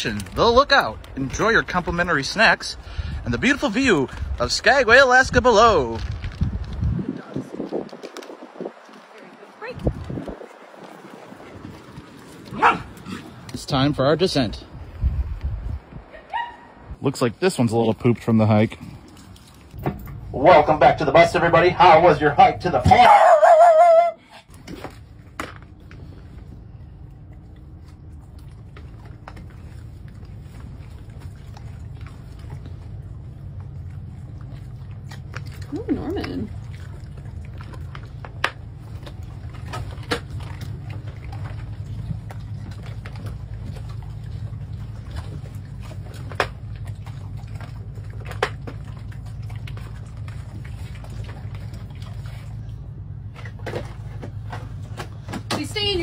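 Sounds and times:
dogs chewing treats: 24.6s - 55.4s.

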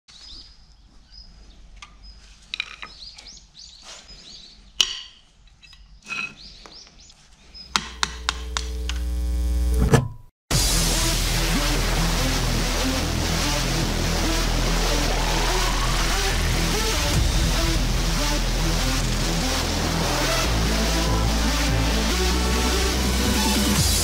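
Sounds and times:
birds chirping: 5.6s - 8.6s.

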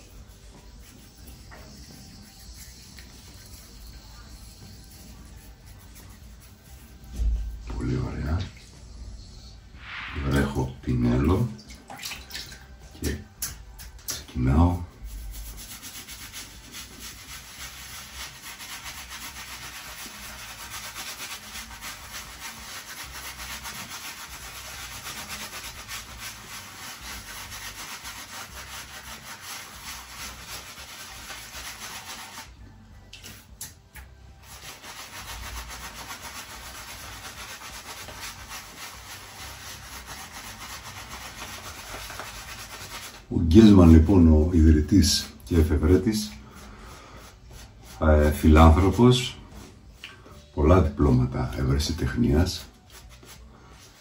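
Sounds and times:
shaving brush swishing: 14.5s - 32.6s, 34.4s - 43.3s, 51.6s - 54.0s.

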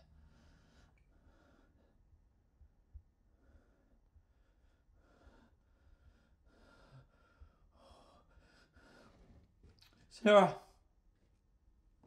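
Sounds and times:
man breathing: 3.3s - 9.4s.

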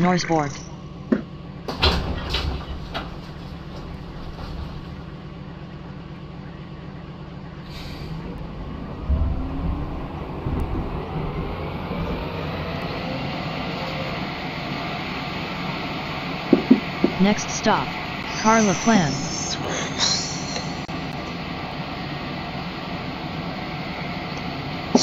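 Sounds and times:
train running noise: 0.0s - 25.0s
train motor whine: 0.7s - 25.0s
train knocks: 1.0s - 5.3s, 16.4s - 17.6s.

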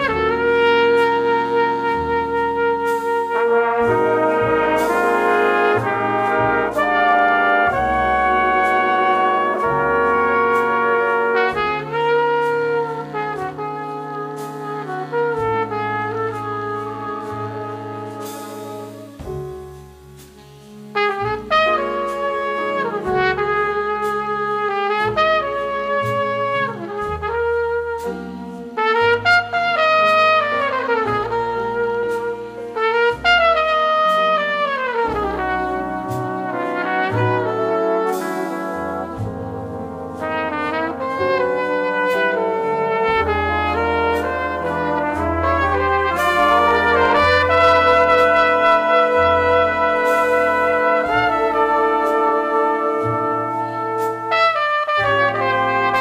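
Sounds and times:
big band jazz ballad: 0.0s - 56.0s
solo trumpet melody: 0.0s - 56.0s.

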